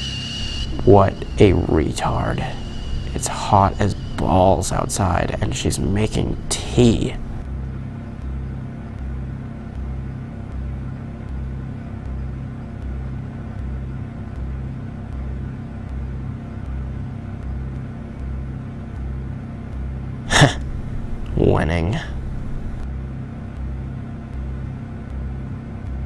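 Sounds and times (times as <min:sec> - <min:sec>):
low machine hum: 0:00.0 - 0:17.5, 0:20.0 - 0:22.9.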